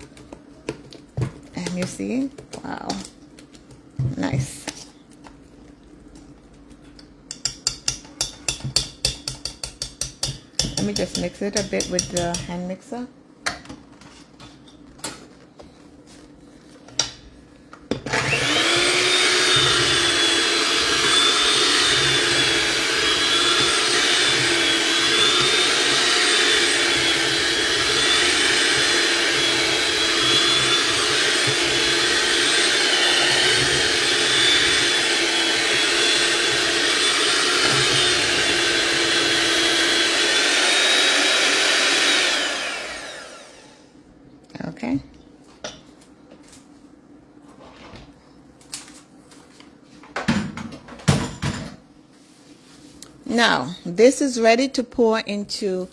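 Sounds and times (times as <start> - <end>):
electric hand mixer whining: 18.0 - 44.0.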